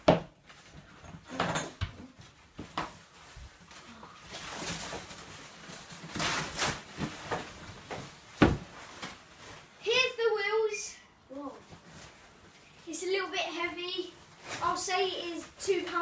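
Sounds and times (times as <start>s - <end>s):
knocks of bike parts and cardboard: 0.0s - 0.4s, 7.0s - 8.8s
foam packaging wrap rustling: 2.9s - 9.8s.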